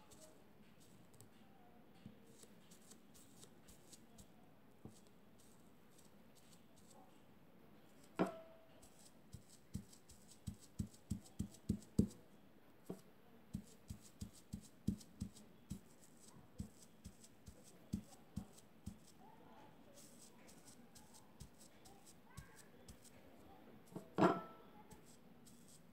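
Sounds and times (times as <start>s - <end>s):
sponge dabbing cloth: 2.3s - 4.3s, 8.8s - 12.2s, 13.5s - 19.2s, 19.9s - 23.2s, 24.9s - 25.9s.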